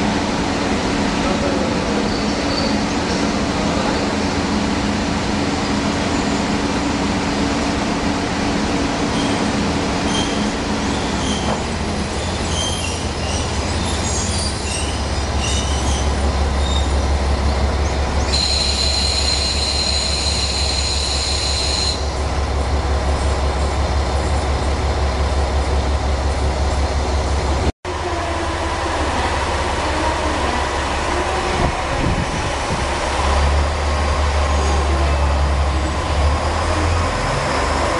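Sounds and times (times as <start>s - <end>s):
diesel railcar rumbling: 0.0s - 37.9s
high-pitched wheel squeal: 18.3s - 22.1s.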